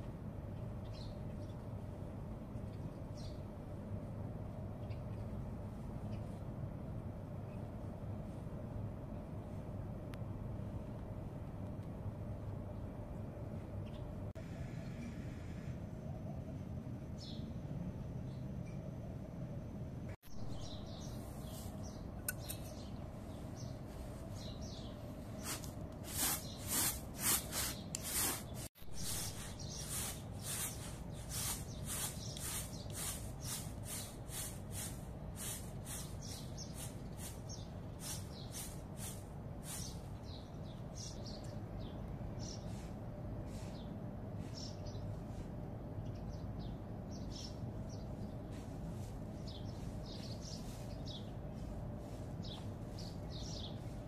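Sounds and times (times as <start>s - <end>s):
flour sieve swishing: 25.3s - 40.0s.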